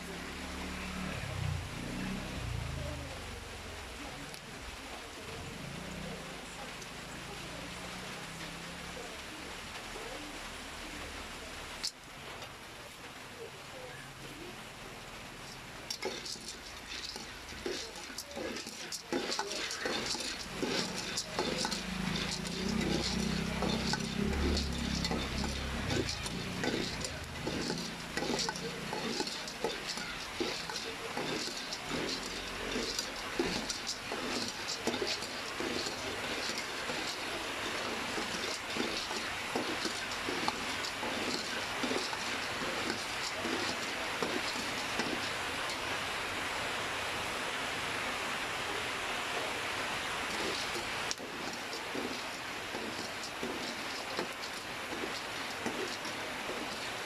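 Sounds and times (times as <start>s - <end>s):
oil sizzling: 15.0s - 46.1s, 49.8s - 57.0s
kernels rattling against metal: 15.4s - 45.8s, 50.3s - 57.0s
spatula scraping pot: 15.4s - 45.8s, 50.3s - 57.0s.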